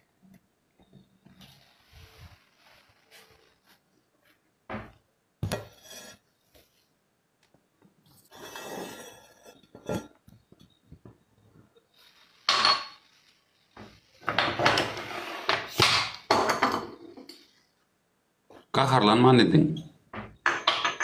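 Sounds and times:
glass clinking: 0:12.5 - 0:13.0, 0:20.2 - 0:21.0.

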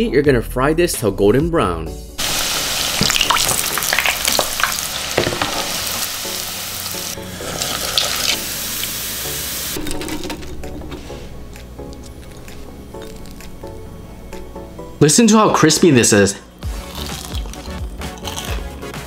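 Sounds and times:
crackling pops of frying oil: 0:02.2 - 0:06.1
food sizzling in hot oil: 0:02.2 - 0:09.8.

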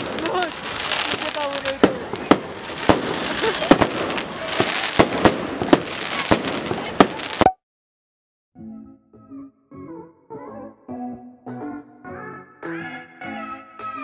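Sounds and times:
heavy rain hissing: 0:00.0 - 0:07.4
fireworks bangs and crackles: 0:00.0 - 0:07.5.

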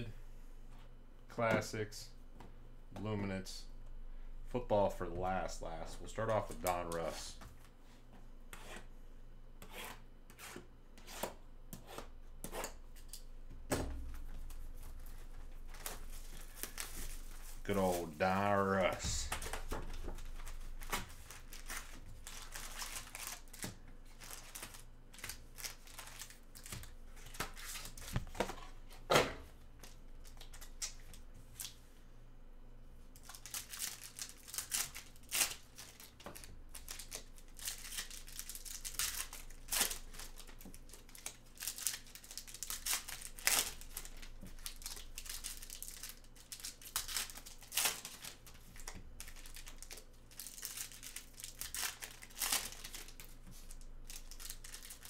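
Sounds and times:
plastic wrapping crinkling and tearing: 0:14.6 - 0:28.3, 0:33.2 - 0:55.0.

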